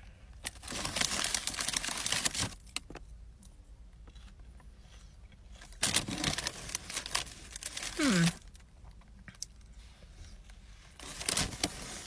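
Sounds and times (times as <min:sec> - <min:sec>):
crackles of eating fries: 0:00.0 - 0:12.0.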